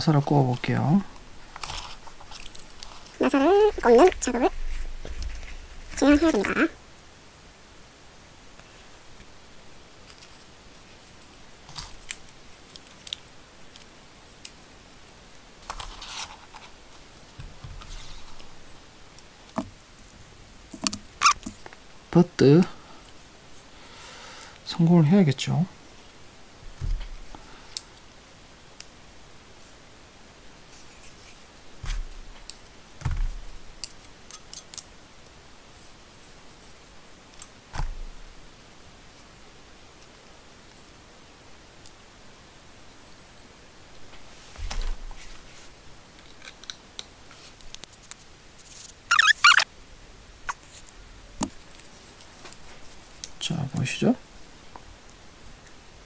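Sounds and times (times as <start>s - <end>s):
plastic parts rustling and scraping: 0.5s - 6.5s, 15.6s - 18.5s.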